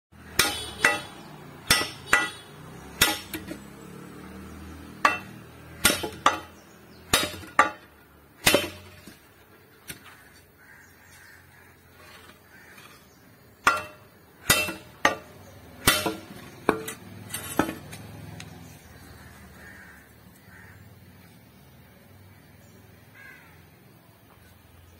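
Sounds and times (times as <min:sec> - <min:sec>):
metal hoe blade clanking: 0:00.2 - 0:03.7, 0:04.9 - 0:10.2, 0:11.9 - 0:18.2.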